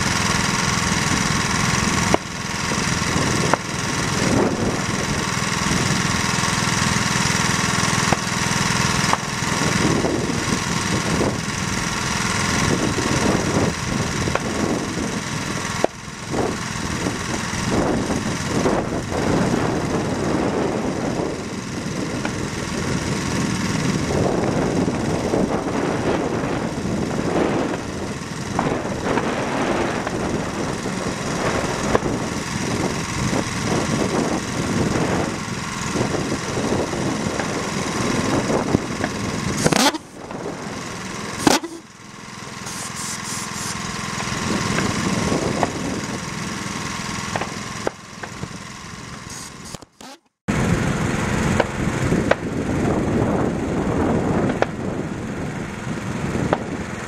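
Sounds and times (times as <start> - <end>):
pulse jet engine buzzing: 0.0 - 53.4.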